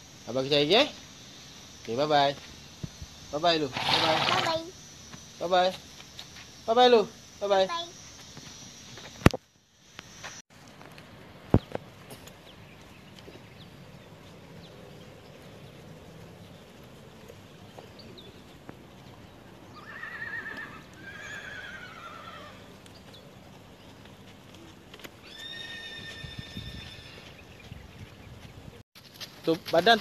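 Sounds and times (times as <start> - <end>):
horse whinnying: 3.7 - 4.5, 19.7 - 22.7, 25.2 - 27.3.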